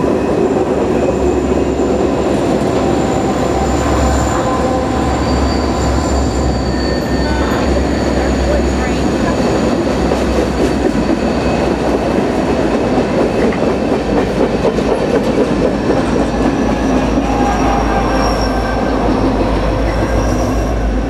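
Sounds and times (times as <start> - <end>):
diesel locomotive rumble: 0.0 - 21.0
freight train wheels rumbling: 0.0 - 21.0
wheel squeal: 3.1 - 8.8.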